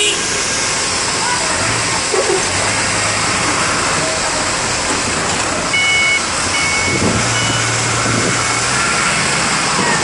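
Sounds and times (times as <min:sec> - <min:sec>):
heavy diesel machinery running: 0:00.0 - 0:10.0
electronic warning alarm beeping: 0:05.7 - 0:07.7.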